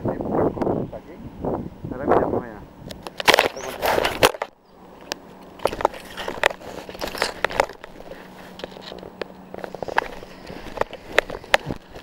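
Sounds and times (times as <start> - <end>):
camera handling noise: 2.9 - 12.0
crunching and clicking: 2.9 - 12.0
faint steady hum: 4.3 - 12.0.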